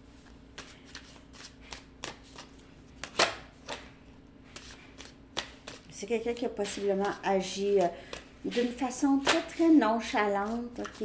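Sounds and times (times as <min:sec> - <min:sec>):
cards shuffling: 0:00.2 - 0:03.9, 0:04.5 - 0:11.0
card snap: 0:03.0 - 0:03.8.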